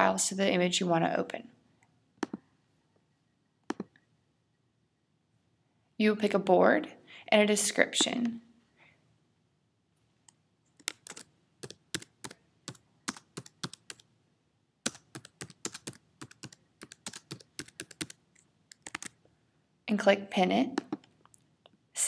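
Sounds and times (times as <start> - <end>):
typing on computer keyboard: 10.8 - 14.1, 14.8 - 19.2.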